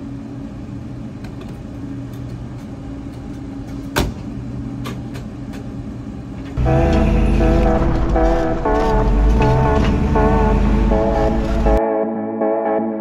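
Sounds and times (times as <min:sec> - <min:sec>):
truck engine running: 0:06.6 - 0:11.8.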